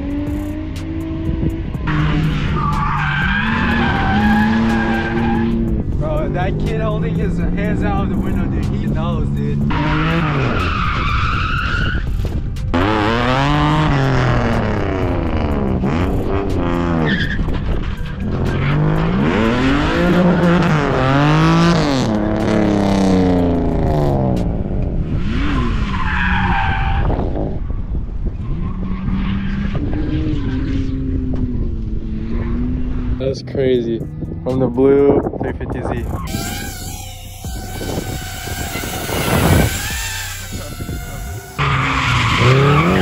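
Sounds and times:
car engine revving hard: 0.0 - 11.0, 12.7 - 17.1, 18.3 - 26.1, 36.3 - 43.0
tyres squealing: 2.0 - 5.7, 36.1 - 43.0.

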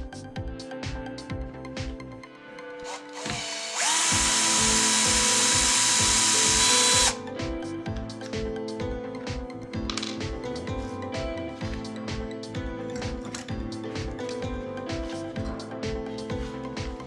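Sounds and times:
background music with steady beat: 0.0 - 17.0
cordless drill motor whine: 2.8 - 7.2.

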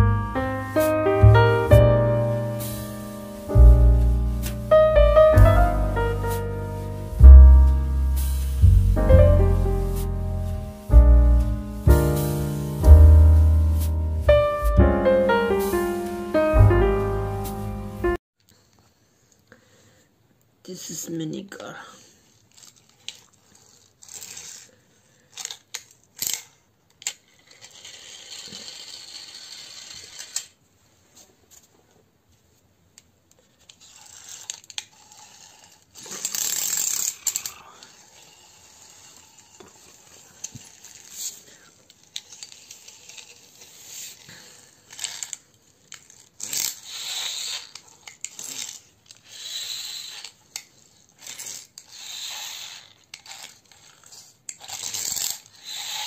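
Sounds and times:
toy car wheels rolling and rattling: 22.0 - 31.8, 33.0 - 56.0.

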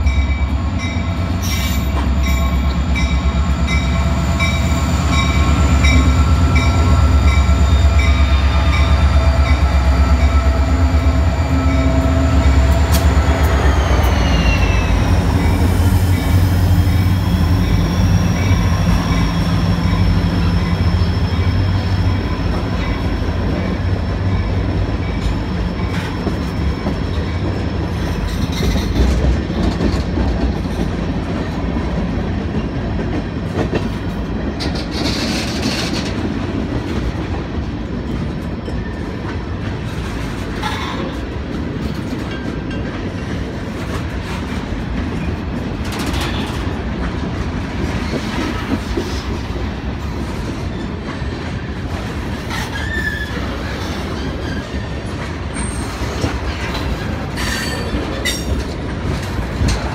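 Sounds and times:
train wheels screeching: 0.0 - 29.2, 34.6 - 36.3, 47.8 - 59.9
train wheels rumbling on rails: 0.0 - 59.9.

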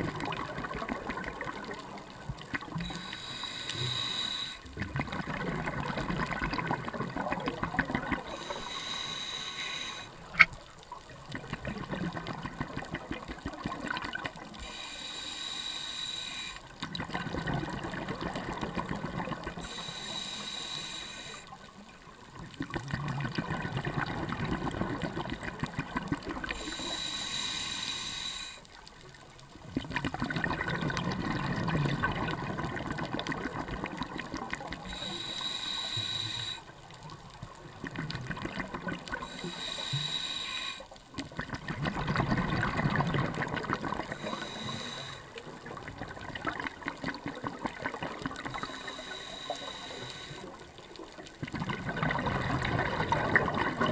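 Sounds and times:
exhaled bubbles burbling: 0.0 - 3.0, 4.6 - 8.6, 10.2 - 14.7, 16.8 - 19.8, 22.2 - 26.9, 29.6 - 35.1, 37.5 - 39.6, 41.2 - 48.8, 50.6 - 53.9
regulator hissing inhales: 2.8 - 4.7, 8.3 - 10.3, 14.6 - 16.7, 19.6 - 21.6, 26.5 - 28.7, 34.8 - 36.7, 39.2 - 41.0, 44.1 - 45.4, 48.5 - 50.6.

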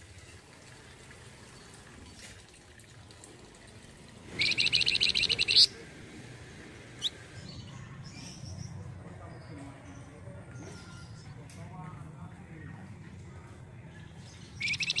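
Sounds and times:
songbird trilling: 4.4 - 5.8, 7.0 - 7.2, 14.6 - 15.0.

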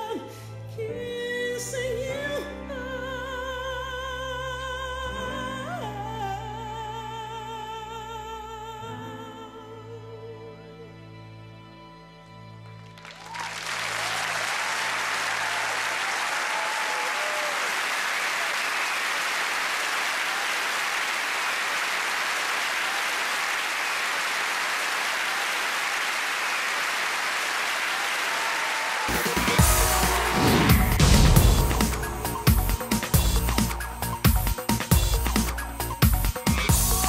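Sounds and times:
music: 0.0 - 16.4, 29.0 - 37.0
audience applauding: 12.8 - 37.0
people cheering: 13.0 - 33.8, 36.6 - 37.0.

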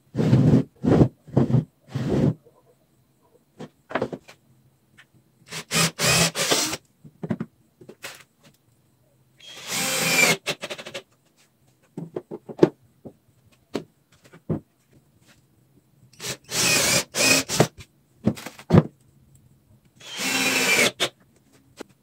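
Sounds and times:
clicks and knocks of wood: 3.6 - 4.4, 11.7 - 15.0
power tool on wood: 5.5 - 6.8, 20.0 - 21.1.

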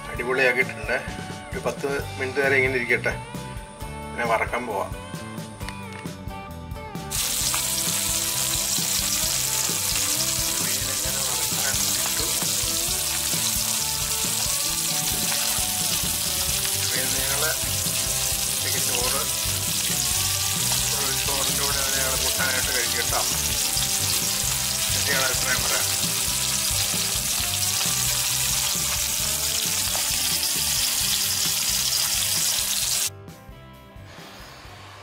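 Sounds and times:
fish sizzling in hot oil: 7.1 - 33.1.

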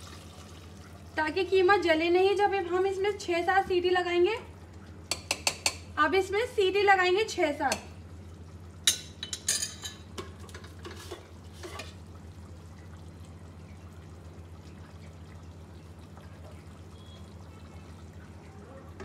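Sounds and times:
curry simmering: 7.9 - 19.0.

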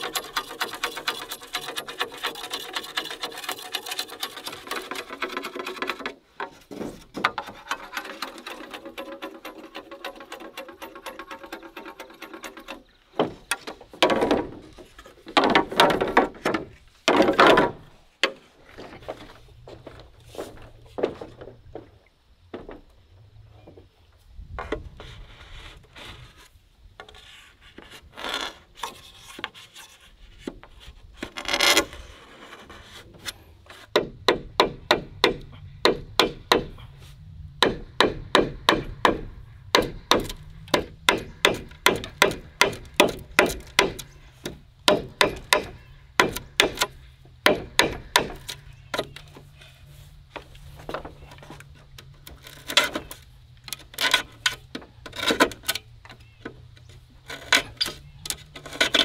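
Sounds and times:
blade scraping bamboo: 0.0 - 19.4, 24.6 - 34.2, 39.1 - 59.0
knife chopping bamboo: 37.6 - 44.0, 44.9 - 46.9, 47.5 - 48.4.

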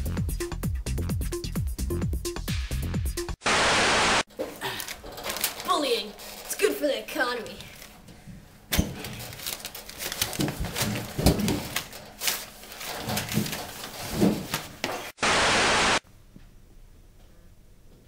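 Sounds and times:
loud burst of static hiss: 3.4 - 4.3, 15.2 - 16.0
knocks and clatter: 10.2 - 12.1, 12.8 - 15.1.

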